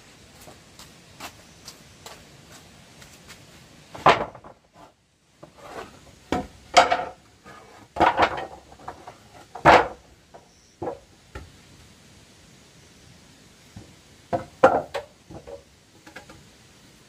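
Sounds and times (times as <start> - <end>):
light scraping of wood: 0.4 - 10.0
wooden planks knocking: 3.9 - 4.8, 6.3 - 7.2, 8.0 - 11.0, 13.8 - 16.4.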